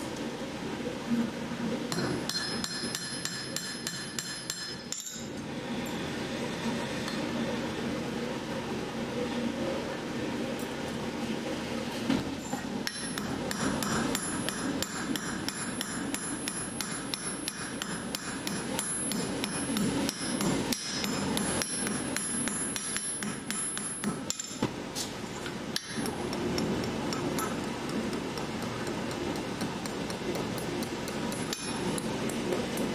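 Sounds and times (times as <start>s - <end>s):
hammer ringing on anvil: 1.9s - 5.3s.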